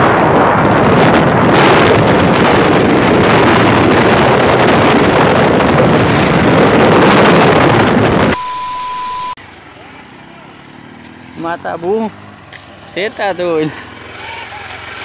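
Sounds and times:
wind buffeting microphone: 0.0s - 8.4s
electronic beep: 8.4s - 9.4s.

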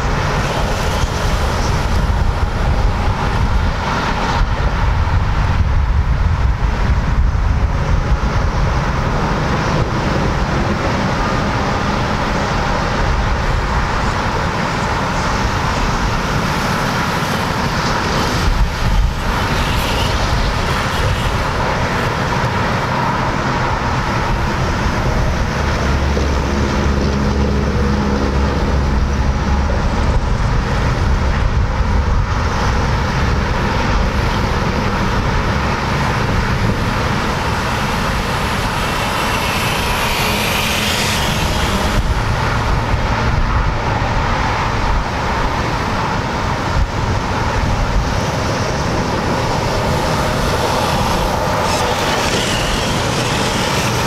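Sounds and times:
heavy vehicle hum: 0.0s - 54.0s
highway traffic noise: 0.0s - 54.0s
rising and falling whine: 22.9s - 54.0s.

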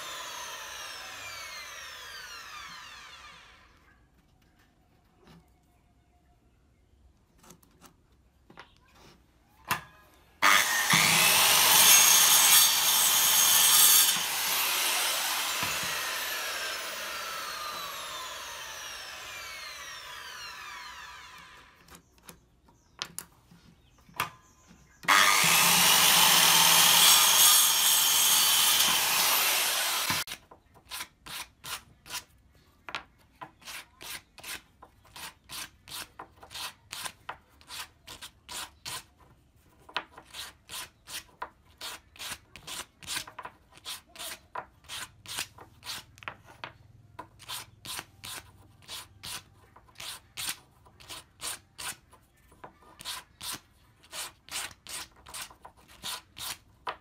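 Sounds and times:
circular saw cutting wood: 0.0s - 3.8s, 10.4s - 22.0s, 25.0s - 30.4s
saw blade whining down: 0.0s - 3.8s, 10.4s - 21.8s, 25.1s - 30.3s.

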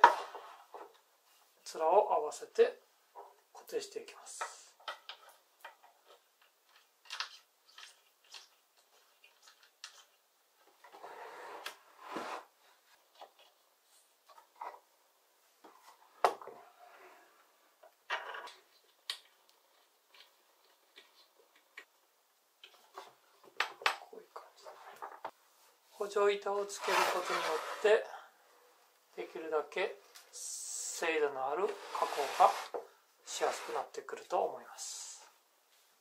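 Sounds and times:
wood sliding scrapes: 10.9s - 12.5s, 26.6s - 28.0s, 31.6s - 34.0s.

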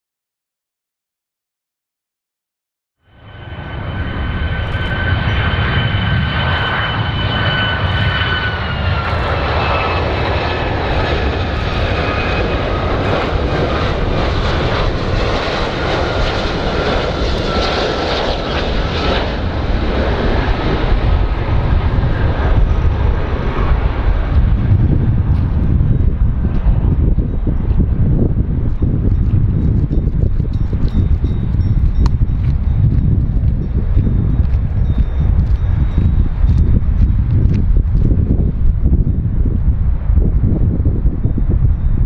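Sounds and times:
jet engines rumbling and whining: 3.0s - 42.0s.

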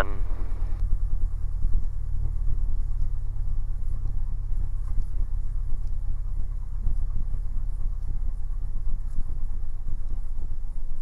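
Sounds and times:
small plane engine droning: 0.0s - 11.0s.

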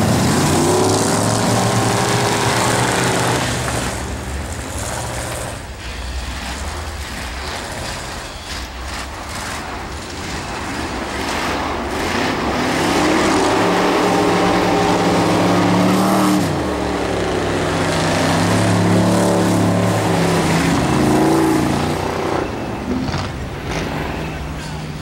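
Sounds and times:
race car engine revving hard: 0.0s - 5.8s, 10.2s - 24.2s.

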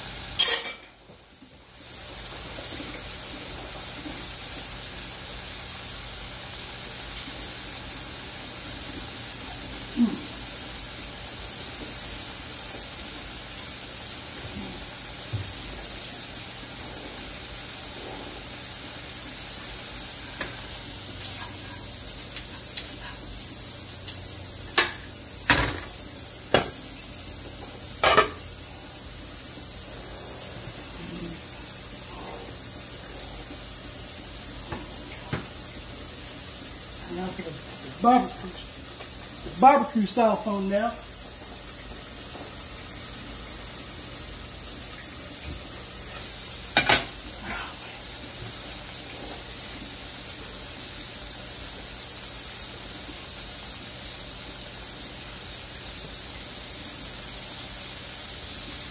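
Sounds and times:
steady hiss: 0.0s - 58.9s
kitchenware knocking and clinking: 0.4s - 0.9s.

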